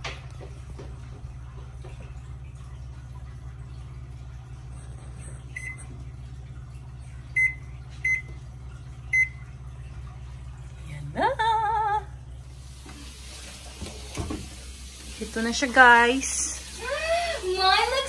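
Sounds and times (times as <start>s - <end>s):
steady low hum: 0.2s - 18.0s
oven control panel beeps: 5.5s - 5.9s, 7.4s - 8.4s, 9.1s - 9.4s.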